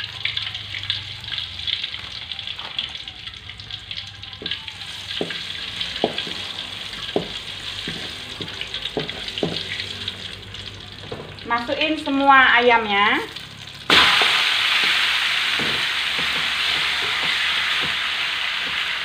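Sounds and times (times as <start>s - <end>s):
garlic sizzling in oil: 4.4s - 19.0s.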